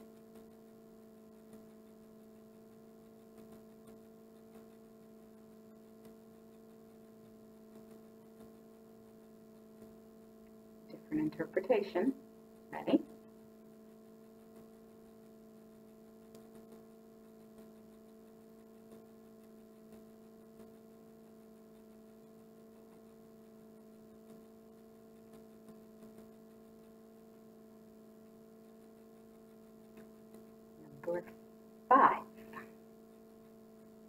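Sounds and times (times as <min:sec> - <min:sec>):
faint soft ticks: 0:00.0 - 0:10.6, 0:14.0 - 0:27.6
steady low hum: 0:00.0 - 0:34.0.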